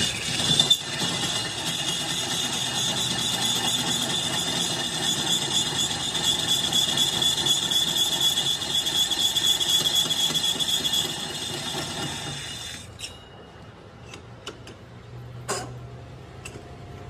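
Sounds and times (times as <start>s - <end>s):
lathe cutting tool whining: 0.0s - 12.9s
machine running noise: 0.0s - 13.0s.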